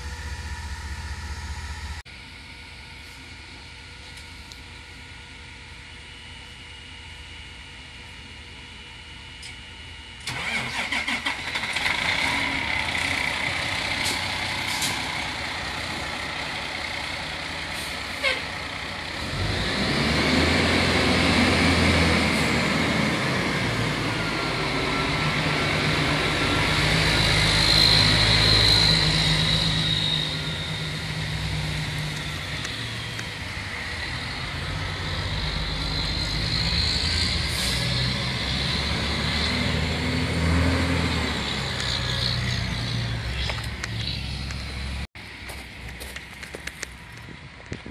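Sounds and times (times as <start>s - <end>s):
fire engine diesel running: 0.0s - 2.4s, 10.2s - 47.9s.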